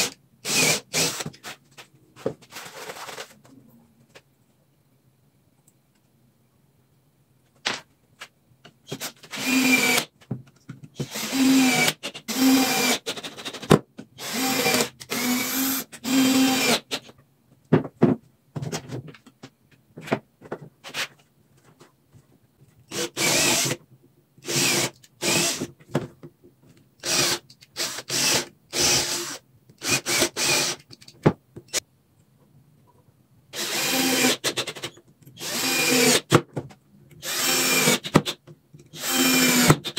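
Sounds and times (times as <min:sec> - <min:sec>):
electric drill bursts: 0:09.3 - 0:10.1, 0:11.0 - 0:13.0, 0:14.2 - 0:16.8, 0:27.0 - 0:30.8, 0:33.6 - 0:34.6, 0:35.4 - 0:36.2, 0:37.2 - 0:38.1, 0:39.0 - 0:39.8.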